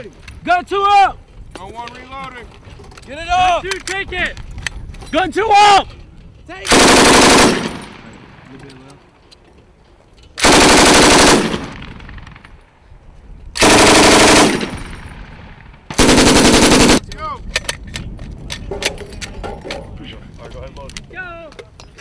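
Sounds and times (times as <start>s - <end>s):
machine gun firing bursts: 6.7s - 8.0s, 10.4s - 12.4s, 13.6s - 17.0s
gunfire echo: 13.6s - 17.0s.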